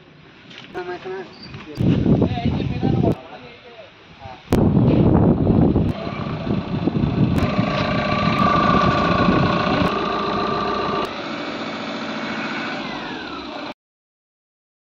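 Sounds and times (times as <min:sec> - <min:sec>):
thin steady whine: 0:05.7 - 0:13.7
diesel engine idling: 0:05.9 - 0:13.7.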